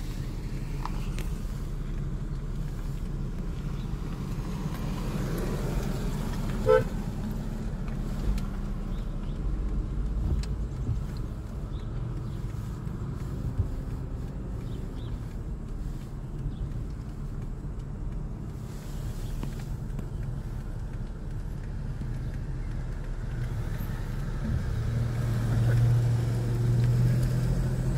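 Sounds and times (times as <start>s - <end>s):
car engine and road rumble: 0.0s - 27.9s.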